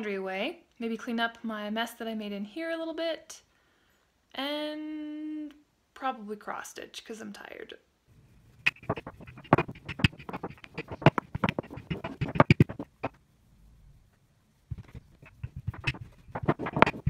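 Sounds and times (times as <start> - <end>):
rolling pin knocking on countertop: 8.7 - 12.9, 14.8 - 17.0.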